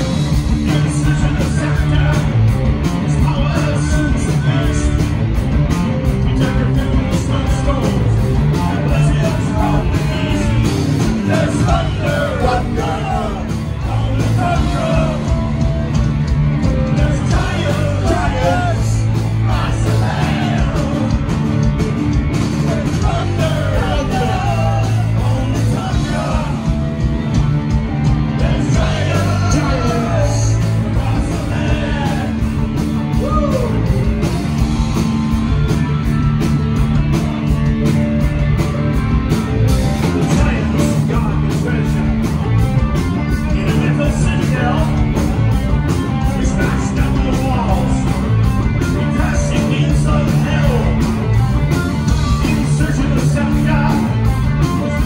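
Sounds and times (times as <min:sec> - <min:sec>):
distorted electric guitars: 0:00.0 - 0:55.0
driving drum beat: 0:00.0 - 0:55.0
singer belting and shouting: 0:06.3 - 0:15.6, 0:16.9 - 0:21.4, 0:22.5 - 0:26.9, 0:28.3 - 0:34.0, 0:43.2 - 0:45.2, 0:48.9 - 0:51.3, 0:52.3 - 0:54.3.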